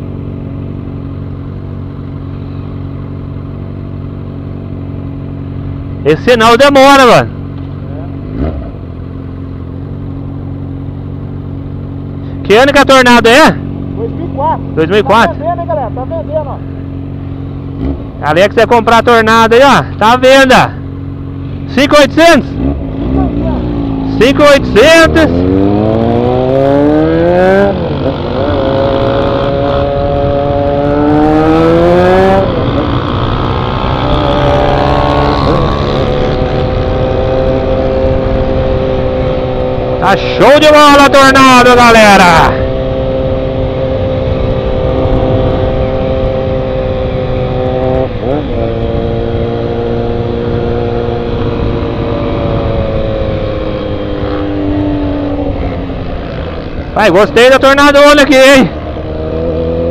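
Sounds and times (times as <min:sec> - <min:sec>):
motorcycle engine accelerating: 0:00.0 - 0:59.9
wind rumble on microphone: 0:25.4 - 0:40.1, 0:42.6 - 0:57.5.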